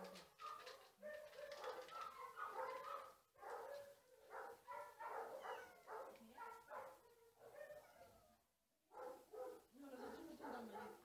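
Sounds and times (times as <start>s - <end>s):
dog whining and yipping: 5.0s - 6.0s.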